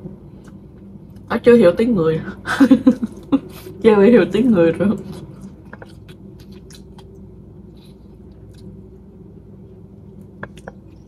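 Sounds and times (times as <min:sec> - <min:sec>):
steady low hum: 0:00.0 - 0:11.0
person chewing: 0:05.0 - 0:09.0, 0:10.0 - 0:11.0
wet mouth sounds and clicks: 0:10.2 - 0:11.0.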